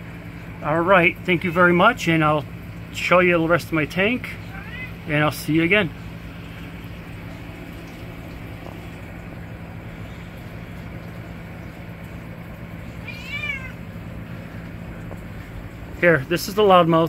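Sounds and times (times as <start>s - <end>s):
pumps humming: 0.0s - 17.0s
cat meowing: 4.4s - 5.1s, 12.9s - 13.9s.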